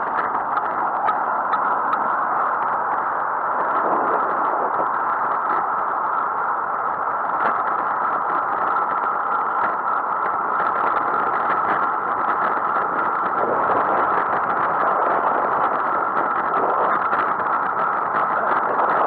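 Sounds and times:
wind and road noise: 0.0s - 19.0s.

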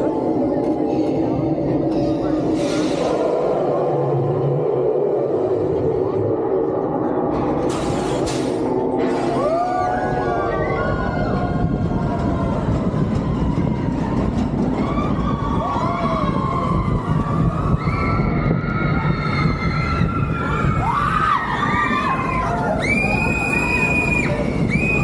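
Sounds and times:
roller coaster rumbling on track: 0.0s - 25.0s
riders screaming and whooping: 9.3s - 25.0s
wind noise: 10.1s - 25.0s.

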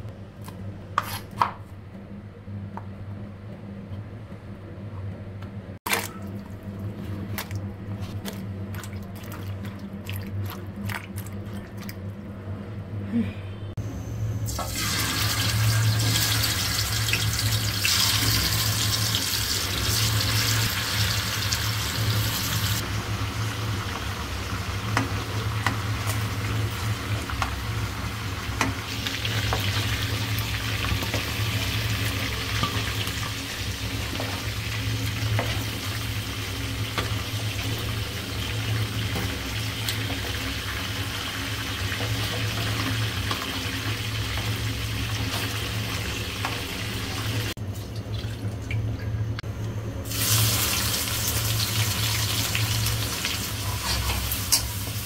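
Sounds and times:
chicken frying in hot oil: 14.5s - 47.6s, 50.1s - 55.0s.

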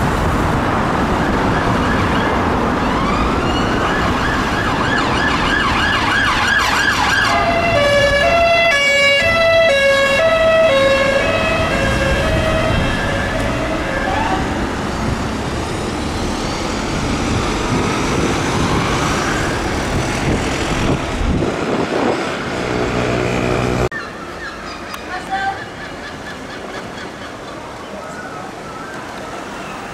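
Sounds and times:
traffic noise: 0.0s - 29.9s
police car siren: 1.2s - 17.3s.

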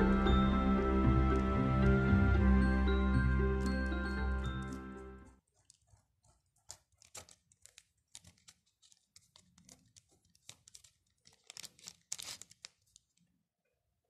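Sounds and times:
fingertips rubbing wet paper: 5.4s - 12.7s.

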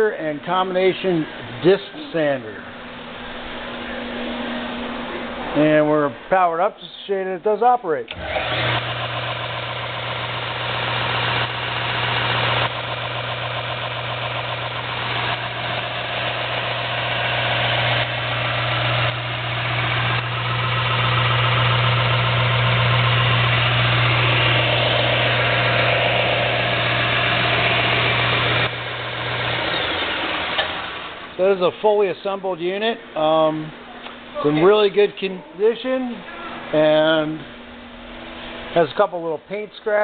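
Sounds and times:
sander motor running: 8.1s - 31.4s.

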